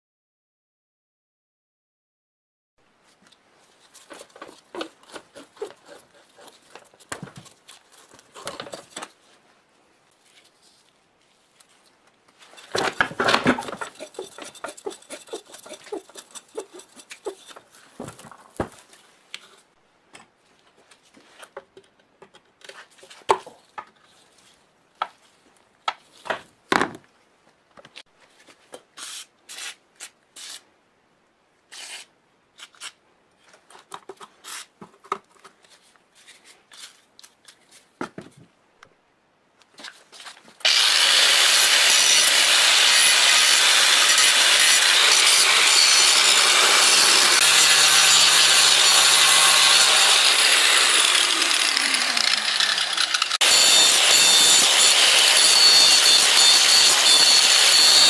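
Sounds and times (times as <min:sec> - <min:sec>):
loud metal scraping: 0:12.6 - 0:17.6, 0:40.7 - 0:58.0.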